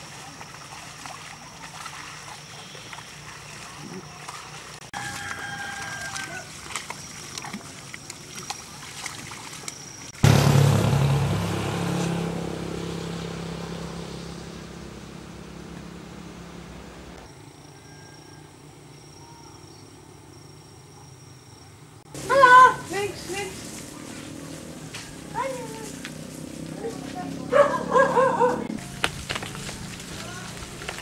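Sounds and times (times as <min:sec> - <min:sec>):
outdoor ambience: 0:00.0 - 0:31.0
low engine rumble: 0:09.9 - 0:17.3, 0:22.0 - 0:31.0.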